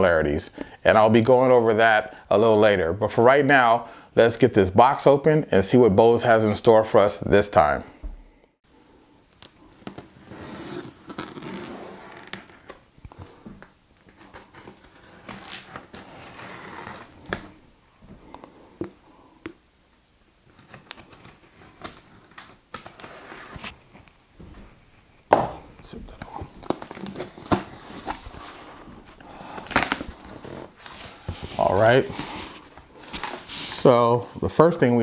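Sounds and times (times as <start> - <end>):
cardboard scraping: 20.5 - 24.0, 26.4 - 33.9.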